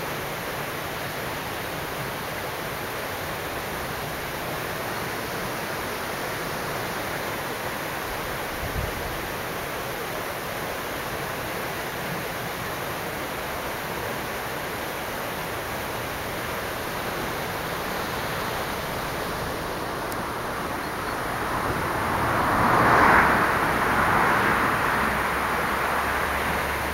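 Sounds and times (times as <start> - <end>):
steady rushing outdoor noise: 0.0 - 26.9.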